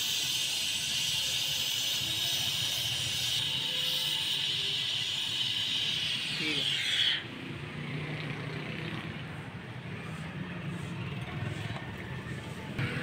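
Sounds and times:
torch flame hissing: 0.0 - 7.3.

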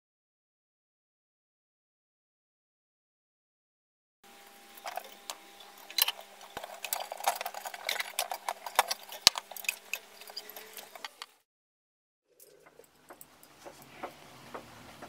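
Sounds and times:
faint steady hum: 4.2 - 11.4.

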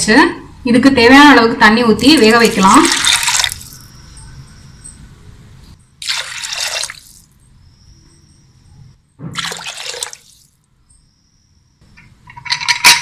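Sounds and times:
water pouring into a pot: 2.2 - 3.9, 6.0 - 7.2, 9.4 - 10.5.

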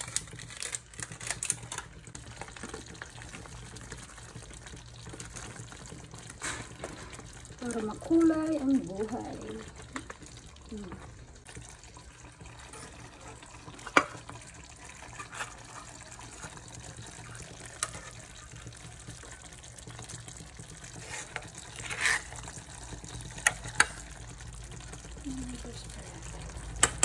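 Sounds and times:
stew simmering hiss: 0.0 - 27.0
utensil scraping pot: 12.4 - 26.1.

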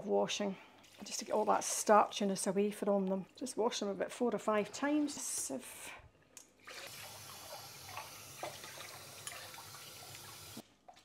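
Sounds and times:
tap running water: 6.6 - 11.0.

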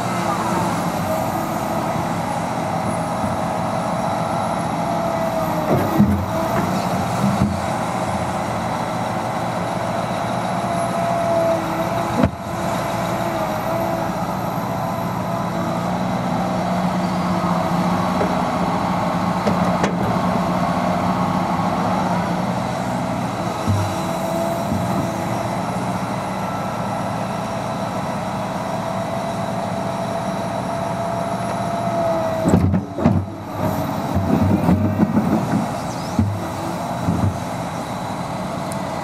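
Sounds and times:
excavator diesel engine under load: 0.0 - 39.0
hydraulic whine: 21.3 - 39.0.

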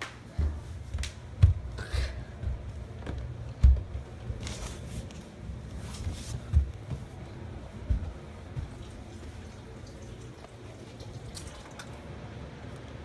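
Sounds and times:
muffled footsteps: 0.0 - 9.7
soft rustle: 4.1 - 9.4.

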